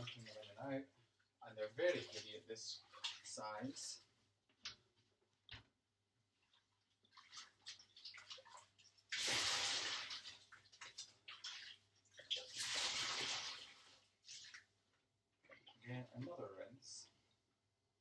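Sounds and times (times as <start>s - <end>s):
wet yarn splashing in sink: 0.0s - 0.7s, 1.9s - 3.5s, 6.4s - 16.3s
water rushing and pouring: 7.2s - 11.0s, 12.2s - 14.5s.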